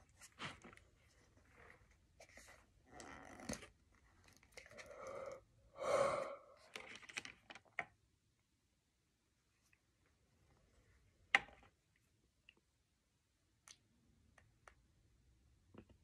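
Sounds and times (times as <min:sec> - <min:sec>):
person breathing out heavily: 0:04.7 - 0:06.7.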